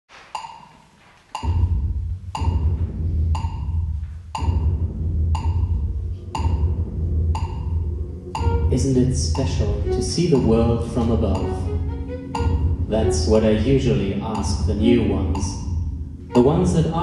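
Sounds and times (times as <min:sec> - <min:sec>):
low bass drone: 0:01.4 - 0:17.0
percussive knocks with ringing tone: 0:04.4 - 0:07.8.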